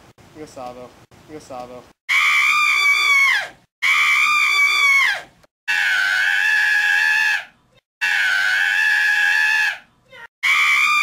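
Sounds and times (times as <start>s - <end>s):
person screaming high-pitched: 2.1s - 11.0s.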